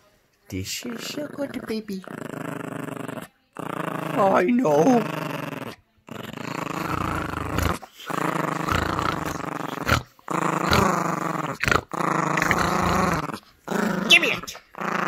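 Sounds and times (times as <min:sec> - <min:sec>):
puppy play-growling: 0:00.8 - 0:15.0.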